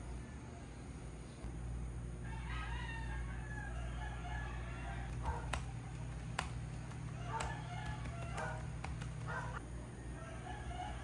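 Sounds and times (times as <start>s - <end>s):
rooster crowing: 2.2s - 5.5s, 7.0s - 9.6s, 10.2s - 11.0s
sharp clicks: 5.1s - 9.6s.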